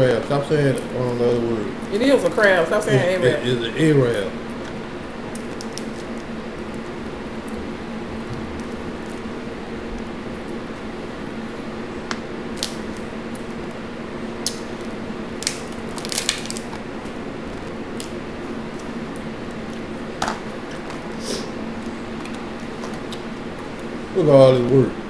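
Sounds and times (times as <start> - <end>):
box fan humming: 0.0 - 25.0
shells cracking and snapping: 4.5 - 7.6, 12.0 - 13.8, 14.4 - 21.0.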